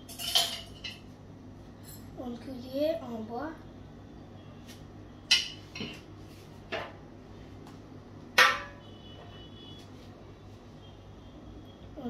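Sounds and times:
utensils clattering on countertop: 0.0s - 1.1s, 5.3s - 6.1s.

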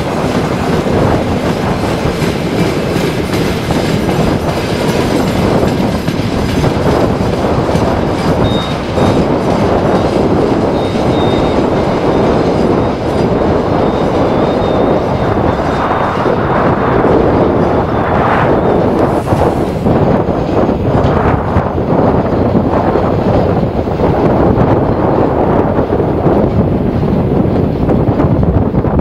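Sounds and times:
steel wheels rumbling on rails: 0.0s - 29.0s
faint high wheel squeal: 8.4s - 9.2s, 10.7s - 12.9s, 13.7s - 15.4s.

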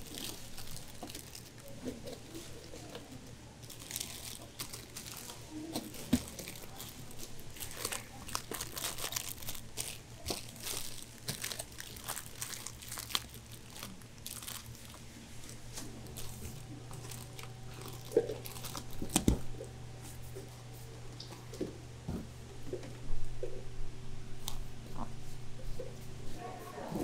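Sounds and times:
plastic wrappers crinkling: 0.0s - 20.2s
faint low hum: 0.0s - 27.0s.

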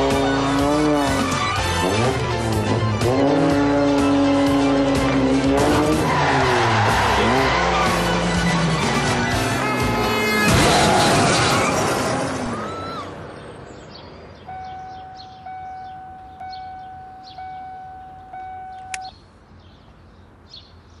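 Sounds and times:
loud noise: 0.0s - 13.2s.

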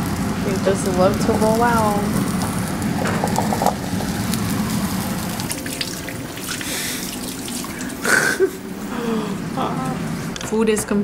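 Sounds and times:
vegetables sizzling in a frying pan: 0.0s - 8.1s.

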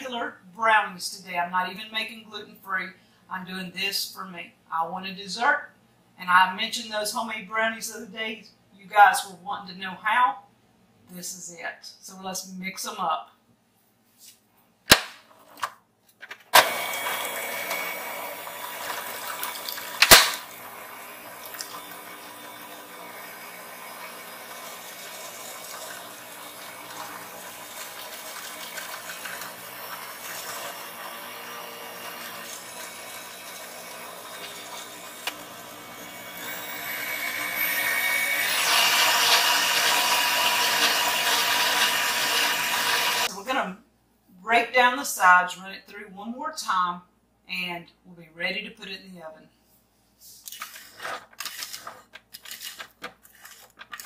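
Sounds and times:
electric stand mixer running: 16.6s - 43.3s.

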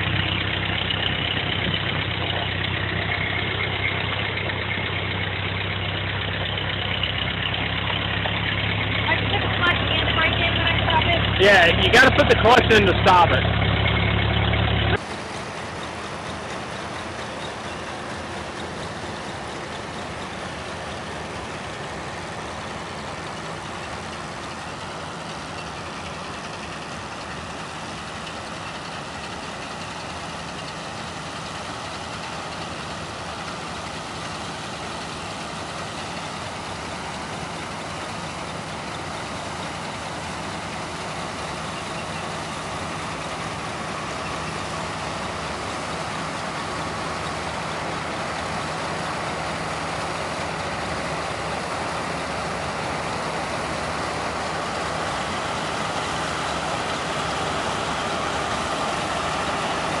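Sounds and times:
low engine hum: 0.0s - 60.0s.

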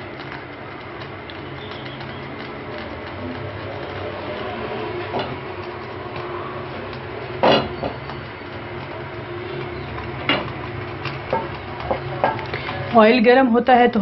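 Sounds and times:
wok knocking on stove: 11.2s - 12.4s.

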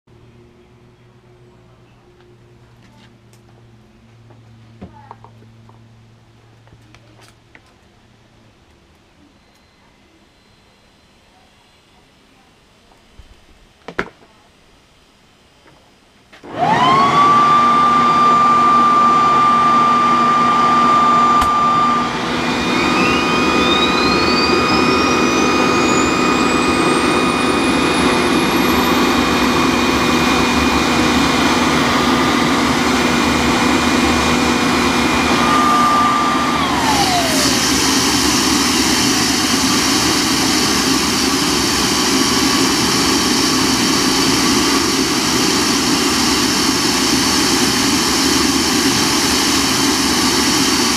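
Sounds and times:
leaf blower whine: 16.3s - 50.9s
engine steady rushing noise: 16.4s - 50.9s
turbine whine climbing in pitch: 16.4s - 50.9s.

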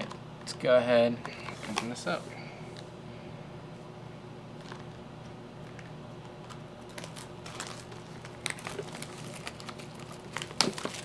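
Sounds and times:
faint steady hum: 0.0s - 11.0s
cardboard clicks and rustles: 6.5s - 11.0s.

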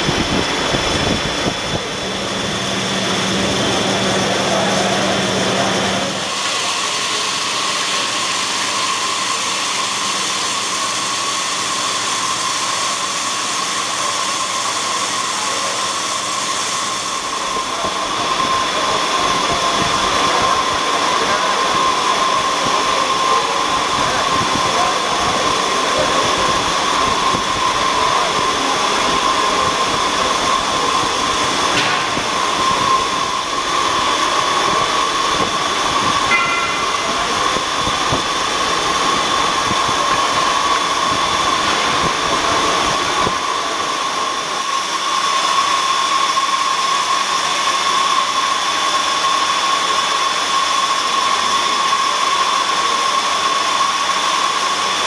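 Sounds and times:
high machine whine: 0.0s - 55.0s
band saw cutting metal: 30.1s - 41.7s.

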